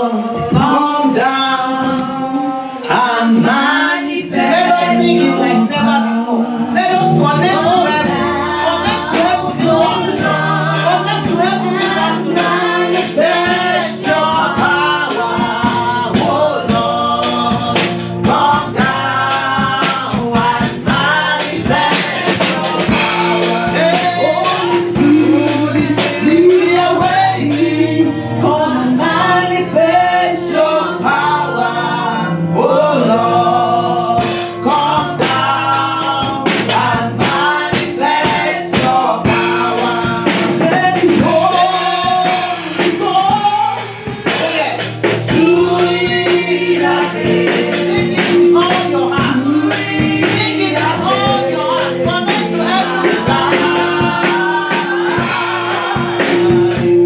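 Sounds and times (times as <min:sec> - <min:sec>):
choir and congregation singing: 0:00.0 - 0:57.0
held instrumental chords: 0:00.0 - 0:57.0
drum hits: 0:06.8 - 0:27.4, 0:34.2 - 0:57.0.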